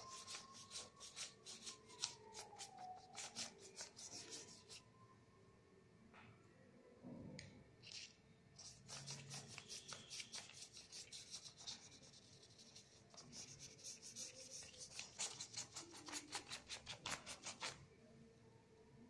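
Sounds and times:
paintbrush scrubbing on paper: 0.0 - 4.8, 7.9 - 17.8.

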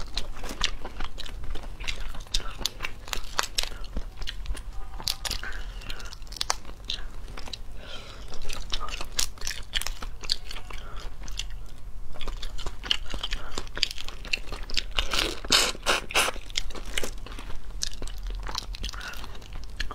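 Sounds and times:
crayfish shells crackling: 0.0 - 7.6
chewing: 0.0 - 19.9.

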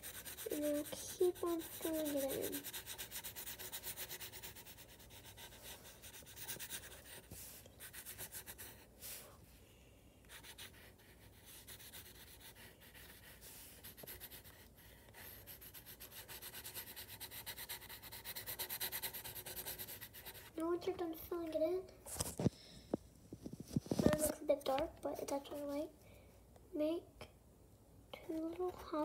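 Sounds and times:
pencil scratching on paper: 0.0 - 9.3, 10.2 - 21.5.

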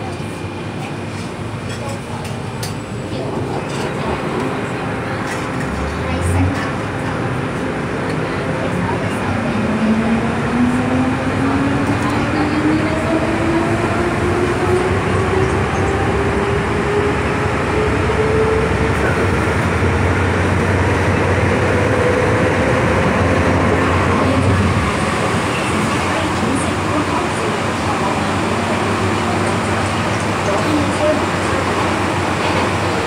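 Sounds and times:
train rumble: 0.0 - 33.0.

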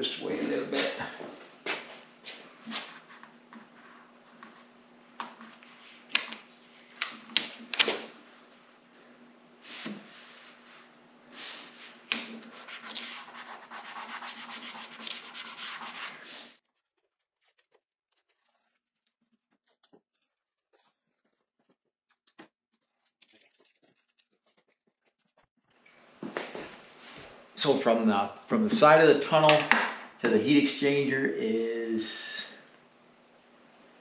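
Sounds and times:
paper and tape rubbing by hand: 9.6 - 25.5.

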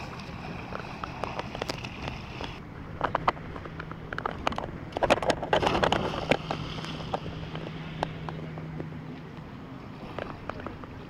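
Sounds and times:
water slapping against paddleboard: 0.0 - 11.0
splash of person diving: 5.5 - 7.8.

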